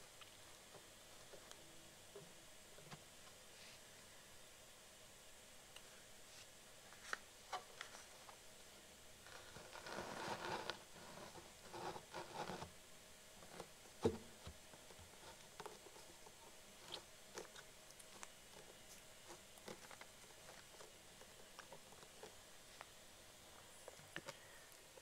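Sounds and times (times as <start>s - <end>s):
rustling: 9.2s - 12.8s, 13.4s - 25.0s.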